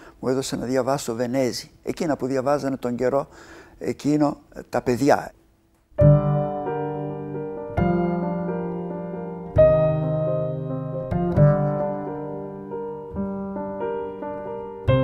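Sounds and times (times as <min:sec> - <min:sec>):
slow solo piano chords: 0:06.0 - 0:15.0.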